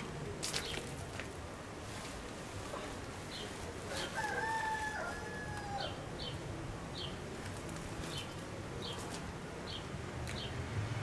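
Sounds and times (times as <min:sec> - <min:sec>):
rooster crowing: 0:03.9 - 0:06.0.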